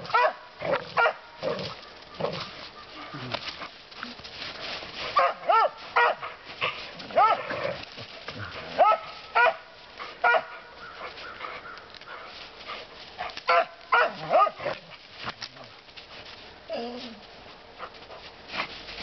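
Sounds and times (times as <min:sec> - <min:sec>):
dog barking: 0:00.1 - 0:01.3, 0:05.2 - 0:06.4, 0:07.2 - 0:07.5, 0:08.8 - 0:10.7, 0:13.5 - 0:14.8.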